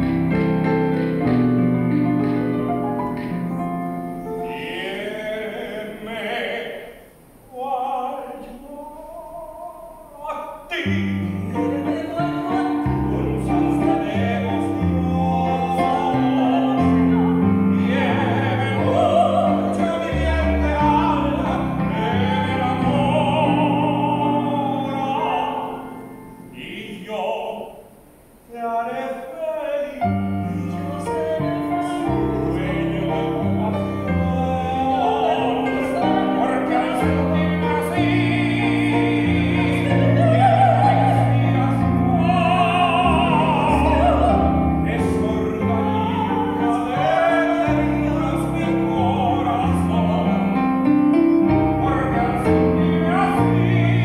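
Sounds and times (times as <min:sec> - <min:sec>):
electric piano accompaniment: 0:00.0 - 0:04.9, 0:30.1 - 0:54.0
operatic duet singing: 0:00.0 - 0:54.0.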